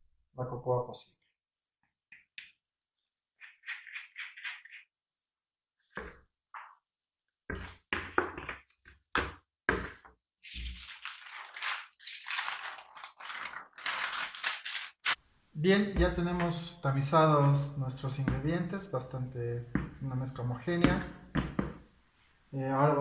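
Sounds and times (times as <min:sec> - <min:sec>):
paper sheet rustling: 0:10.4 - 0:15.2.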